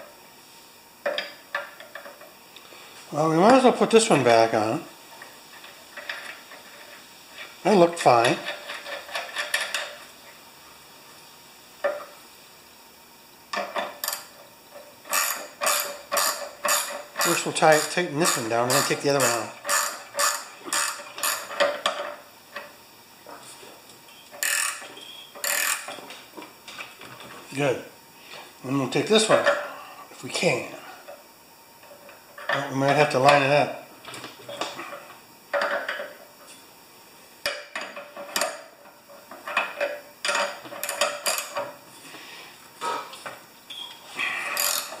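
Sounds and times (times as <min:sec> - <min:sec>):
ratchet wrench clicking: 0:15.1 - 0:21.5, 0:24.4 - 0:24.8, 0:25.4 - 0:25.9.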